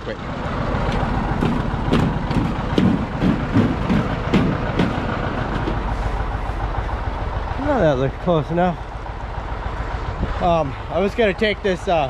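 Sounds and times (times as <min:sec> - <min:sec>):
machine engine idling: 0:00.1 - 0:12.0
sharp clicks and knocks: 0:00.9 - 0:05.9.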